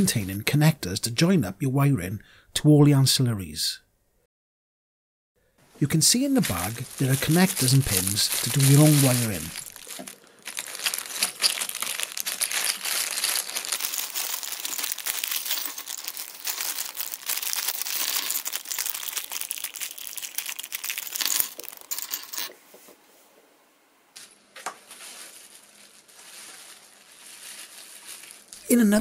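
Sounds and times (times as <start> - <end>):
plastic bag crinkling: 6.2 - 22.5, 24.2 - 28.9.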